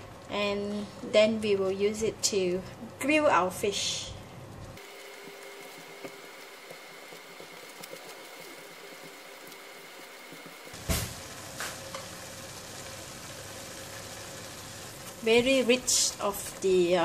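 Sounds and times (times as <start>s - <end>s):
spatula stirring crackles: 4.4s - 17.0s
chili paste sizzling in oil: 4.8s - 17.0s.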